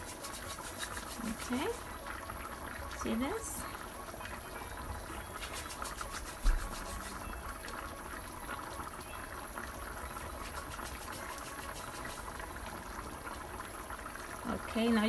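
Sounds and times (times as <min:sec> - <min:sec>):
soup bubbling and popping: 0:03.7 - 0:14.4.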